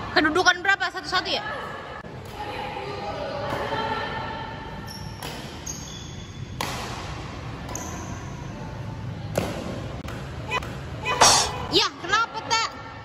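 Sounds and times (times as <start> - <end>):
rackets striking shuttlecock: 11.2 - 11.7.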